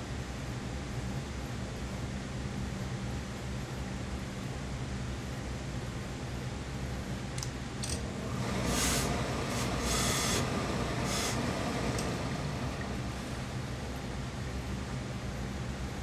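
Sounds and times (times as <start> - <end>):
steady low hum: 0.0 - 16.0
steam iron hissing: 8.3 - 13.1.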